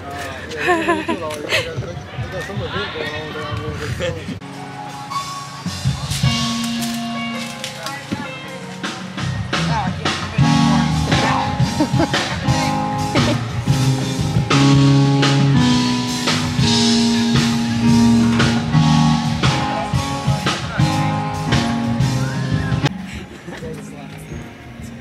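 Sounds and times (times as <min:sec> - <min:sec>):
steady drum beat: 0:08.1 - 0:23.0.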